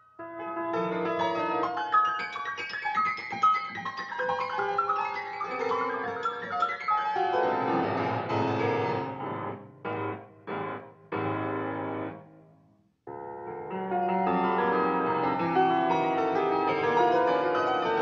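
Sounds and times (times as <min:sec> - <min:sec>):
grand piano playing: 0:00.2 - 0:12.2, 0:13.1 - 0:18.0.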